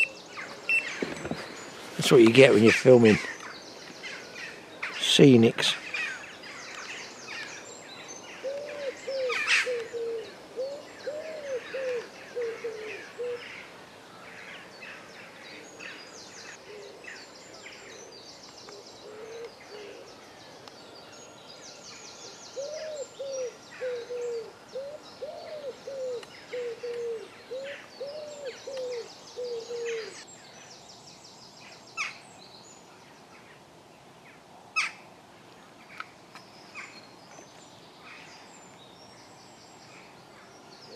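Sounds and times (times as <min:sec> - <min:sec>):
songbirds chirping: 0:00.0 - 0:40.9
pigeon cooing: 0:08.4 - 0:13.5, 0:22.6 - 0:30.2.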